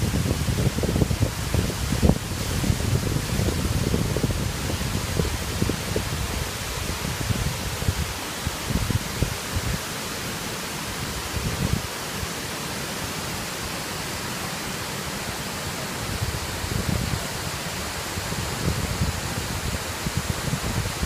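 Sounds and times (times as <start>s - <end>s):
wind buffeting microphone: 0.0s - 9.8s, 11.1s - 11.9s, 16.0s - 21.0s
waterfall rushing: 0.0s - 21.0s.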